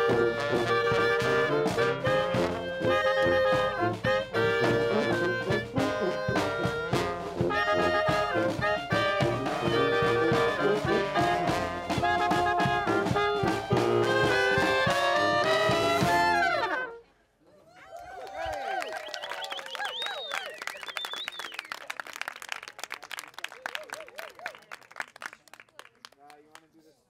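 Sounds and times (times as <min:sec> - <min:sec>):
bass drum and snare beats: 0:00.0 - 0:16.6
brass marching band playing: 0:00.0 - 0:17.0.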